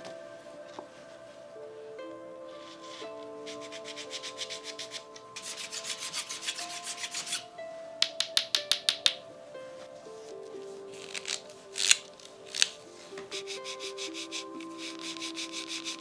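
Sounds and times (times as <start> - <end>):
soft background music: 0.0 - 16.0
hand rubbing bamboo rod: 2.6 - 7.5, 10.9 - 16.0.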